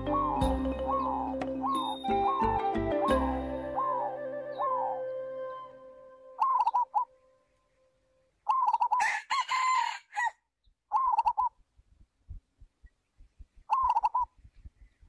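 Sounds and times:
roosters crowing: 8.9 - 10.4.

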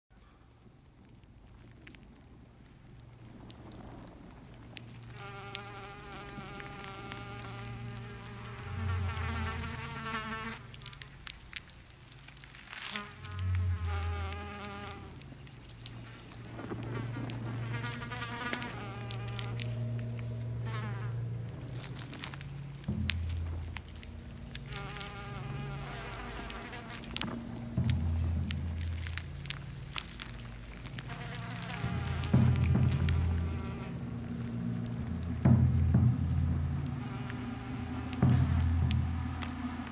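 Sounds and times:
steady low hum: 0.2 - 39.9
buzzing electronic drone: 31.1 - 39.9.

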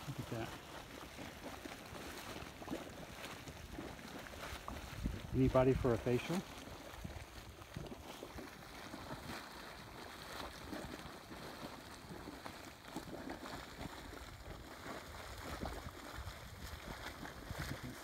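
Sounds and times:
steam vent hissing and gurgling: 0.0 - 18.0.

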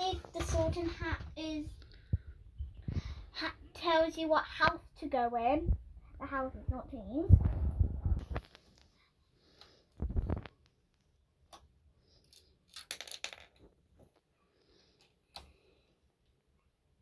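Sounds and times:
plastic pieces clicking and clattering: 11.5 - 13.8.

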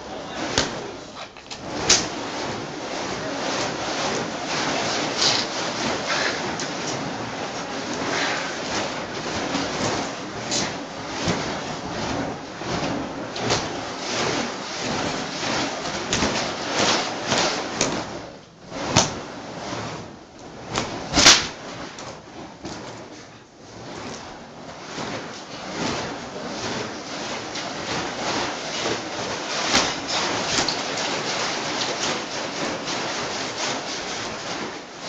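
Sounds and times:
whip cracks: 20.7 - 21.6.

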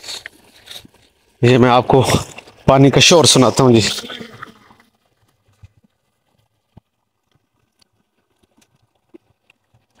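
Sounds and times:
stream running over rocks: 0.0 - 10.0
small water splashes: 3.3 - 10.0.

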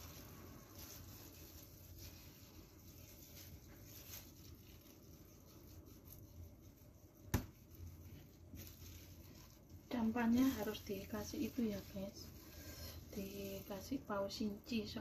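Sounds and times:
knife slicing sushi roll: 0.8 - 9.6.

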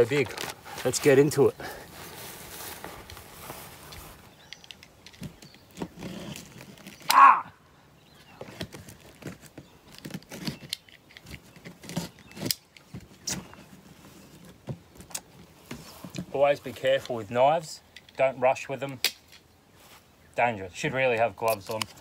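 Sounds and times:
cardboard scraping and rustling: 8.3 - 14.8.

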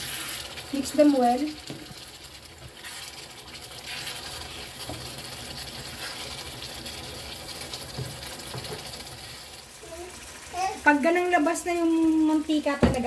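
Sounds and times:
wooden spatula scraping pan: 0.0 - 0.6, 2.6 - 5.2
sauce sizzling: 0.0 - 13.0.

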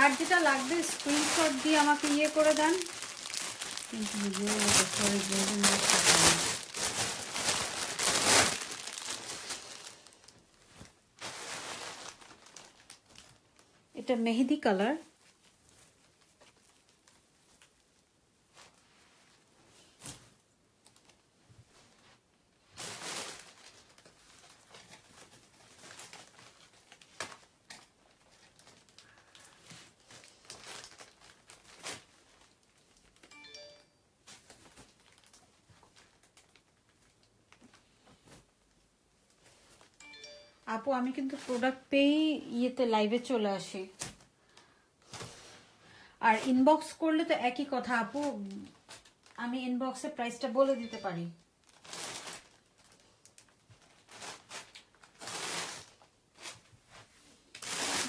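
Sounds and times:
cloth rustling: 0.0 - 13.8, 51.8 - 58.0
plastic wrapping crinkling: 0.0 - 19.0, 20.8 - 33.6, 34.2 - 45.4, 46.2 - 58.0
brief chime: 33.3 - 34.0, 40.0 - 40.6, 50.8 - 51.2.

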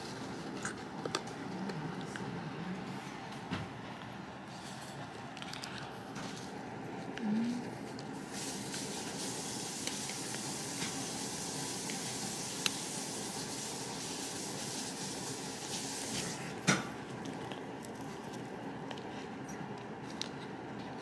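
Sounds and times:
puppy gnawing on chew bone: 5.0 - 7.2, 16.6 - 21.0.

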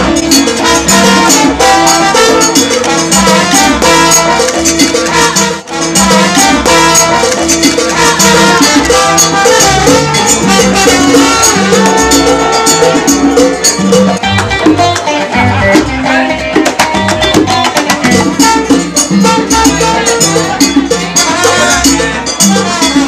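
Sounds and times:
hand drums: 0.0 - 23.0
salsa music: 0.0 - 23.0.

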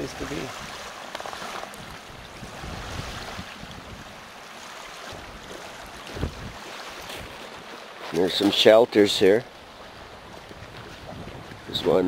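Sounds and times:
wind buffeting microphone: 0.0 - 4.3, 5.1 - 7.6, 10.0 - 12.0
waves washing: 0.0 - 12.0.

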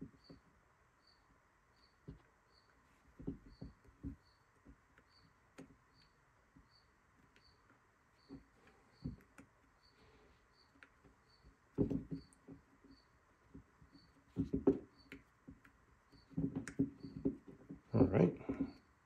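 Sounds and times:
knocks and rubbing on metal part: 14.3 - 15.6, 16.2 - 18.8.

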